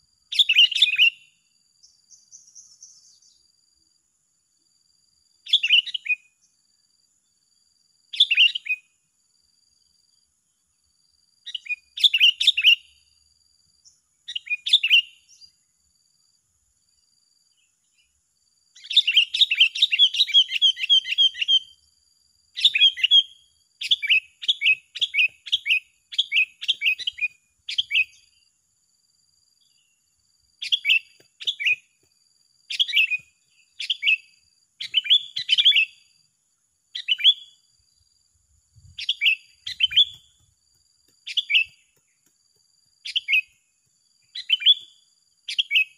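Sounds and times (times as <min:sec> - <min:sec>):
birds chirping: 0:29.6 - 0:32.1, 0:32.7 - 0:36.1, 0:38.7 - 0:42.4.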